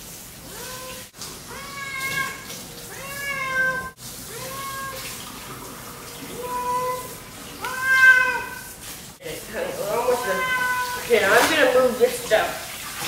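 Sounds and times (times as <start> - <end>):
cat meowing loudly: 0.5 - 5.1, 6.3 - 8.7, 9.9 - 11.2.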